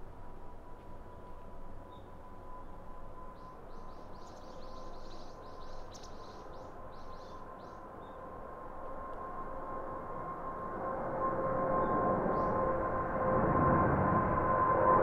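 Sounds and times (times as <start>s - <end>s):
jet engines rumbling and whining: 0.0s - 15.0s
bird chirping: 3.4s - 8.2s.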